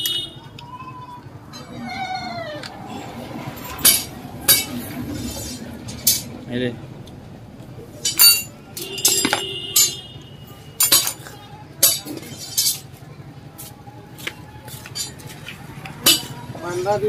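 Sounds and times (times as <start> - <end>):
metal tools clinking: 5.4 - 6.3, 8.0 - 10.1, 10.8 - 13.0, 14.7 - 16.4.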